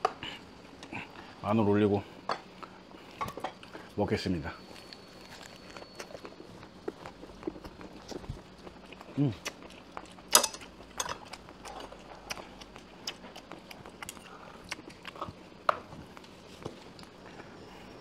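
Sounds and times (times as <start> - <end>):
crunchy chewing: 4.6 - 18.0.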